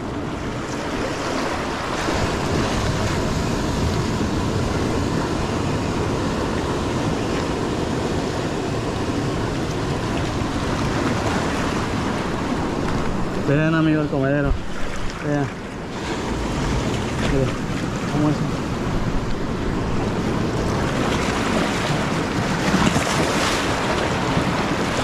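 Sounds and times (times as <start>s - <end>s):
ocean surf breaking on rocks: 0.0s - 25.0s.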